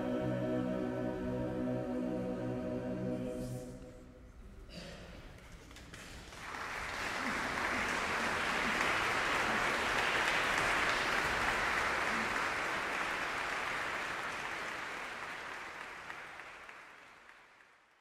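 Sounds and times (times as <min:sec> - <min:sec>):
audience applauding: 0:05.7 - 0:18.0.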